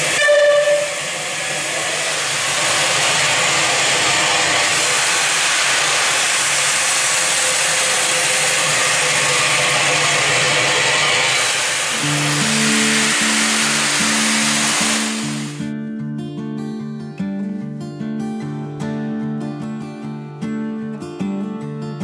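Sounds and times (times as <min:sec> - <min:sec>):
steam hissing: 0:00.0 - 0:15.6
steam locomotive whistle: 0:00.0 - 0:15.6.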